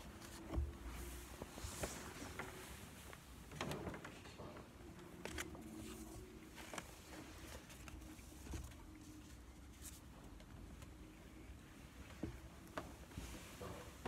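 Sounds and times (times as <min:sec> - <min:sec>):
faint clicks and knocks of objects: 0:00.0 - 0:14.0.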